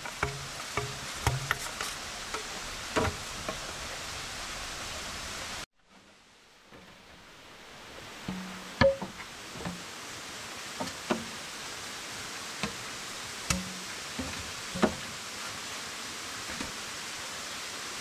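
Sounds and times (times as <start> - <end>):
bamboo poles knocking: 0.0 - 3.8, 8.2 - 9.9, 13.5 - 15.0
falling water rushing: 0.0 - 18.0.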